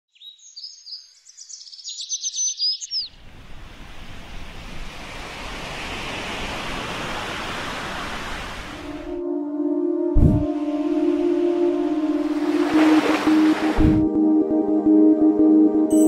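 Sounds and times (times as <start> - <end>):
small birds chirping: 0.1 - 3.2
sea waves breaking: 3.2 - 9.2, 10.2 - 14.1.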